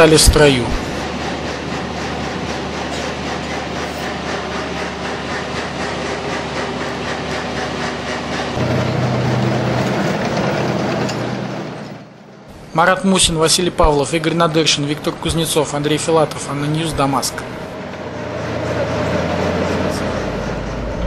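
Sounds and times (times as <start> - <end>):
tank diesel engine running: 0.0 - 12.5, 13.2 - 21.0
tank tracks clattering: 8.5 - 12.1.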